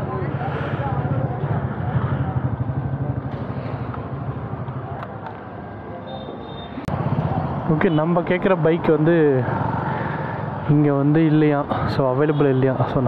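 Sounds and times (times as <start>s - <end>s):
motorcycle engine running: 0.0s - 5.4s, 6.9s - 8.2s.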